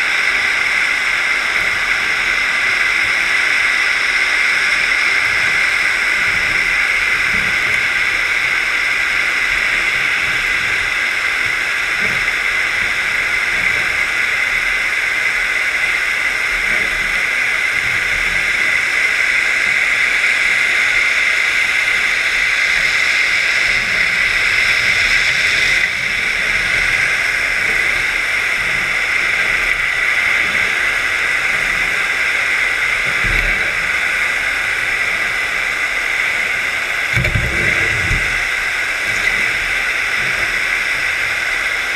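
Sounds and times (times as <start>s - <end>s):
underwater hiss and rush: 0.0s - 41.9s.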